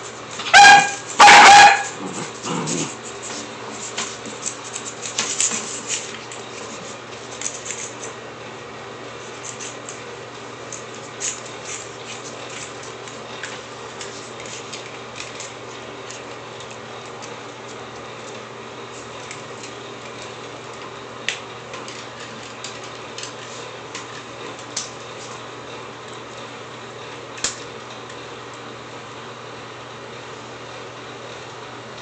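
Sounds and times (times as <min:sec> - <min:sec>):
dog claws clicking on tile: 0:03.8 - 0:08.2, 0:10.7 - 0:17.8.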